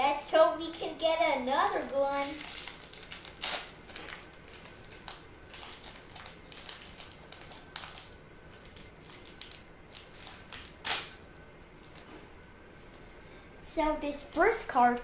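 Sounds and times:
foil wrapper crinkling and tearing: 0.6 - 12.1.

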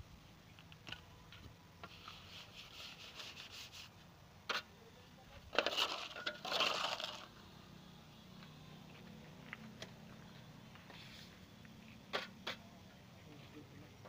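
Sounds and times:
gritty scraping of wet cement: 1.8 - 4.7, 5.4 - 7.4.

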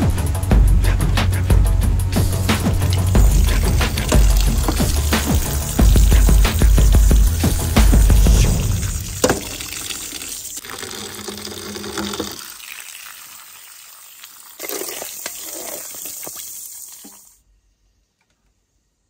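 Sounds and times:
water running and splashing: 2.2 - 17.4.

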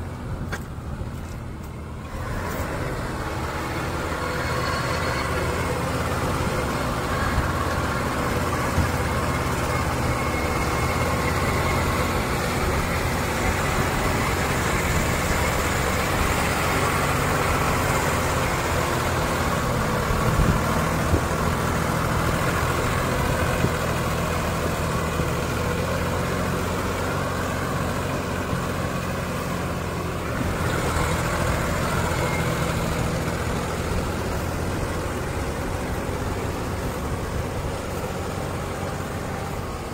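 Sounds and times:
tractor diesel engines under load: 0.0 - 39.9.

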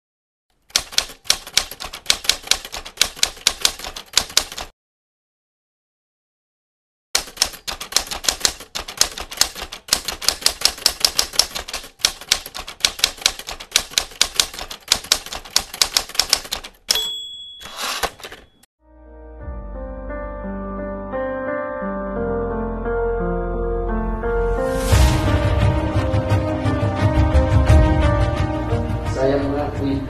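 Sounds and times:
typewriter keys clacking: 0.6 - 4.7, 7.2 - 18.6
typewriter bell ding: 16.9 - 18.7.

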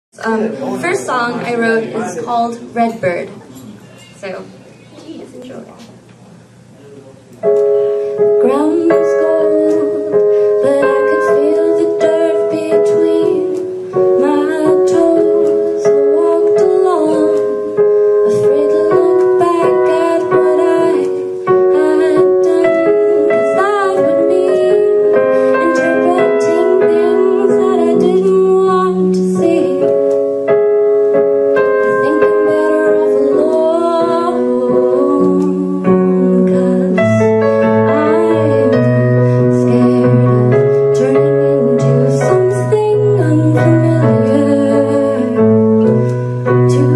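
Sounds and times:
keyboard chords: 7.3 - 46.9
woman singing: 8.3 - 30.1, 31.6 - 46.9.

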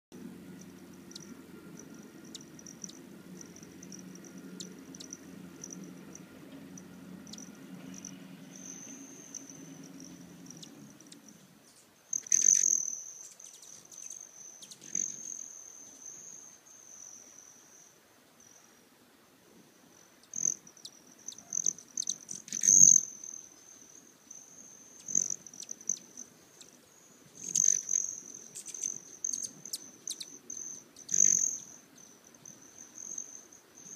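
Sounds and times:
low steady hum: 0.1 - 33.9
hummingbird wings trilling: 0.2 - 16.1, 21.3 - 23.4, 24.3 - 31.8.

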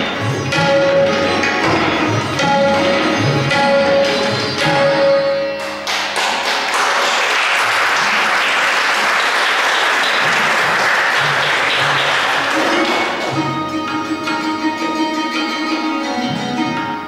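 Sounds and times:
sarod sitar and tabla note: 0.0 - 6.8, 10.1 - 17.0
audience applause: 5.8 - 13.3.

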